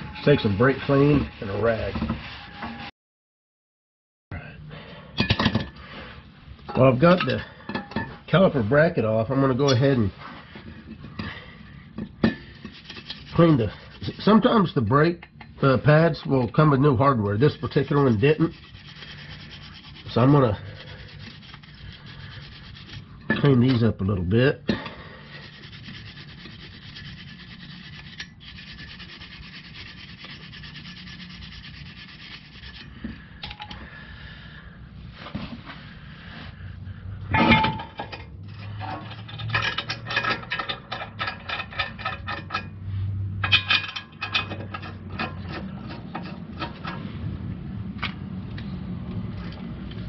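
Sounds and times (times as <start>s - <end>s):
scrubbing metal by hand: 0.0s - 2.9s, 9.6s - 14.7s, 15.9s - 24.0s, 25.2s - 33.1s, 38.6s - 42.7s
metal clank: 37.3s - 42.8s, 43.4s - 47.0s.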